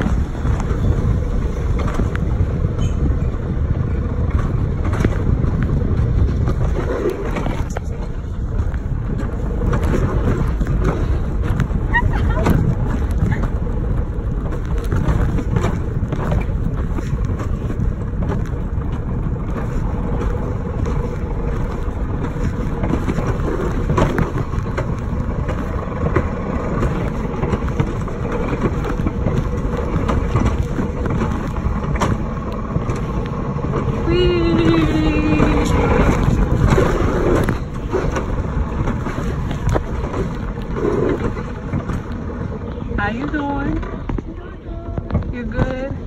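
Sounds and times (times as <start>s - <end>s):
coaster car rumbling on track: 0.0s - 46.0s.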